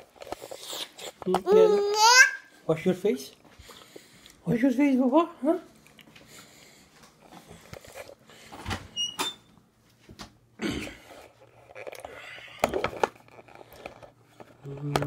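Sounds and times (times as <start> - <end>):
knocks and rustles of handling: 9.8 - 15.0.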